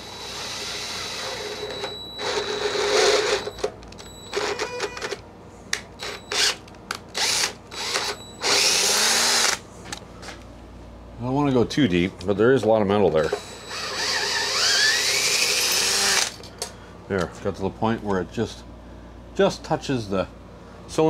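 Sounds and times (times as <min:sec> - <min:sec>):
cordless drill drilling into metal: 0:00.0 - 0:03.6, 0:06.0 - 0:06.6, 0:07.2 - 0:09.6, 0:13.3 - 0:16.3.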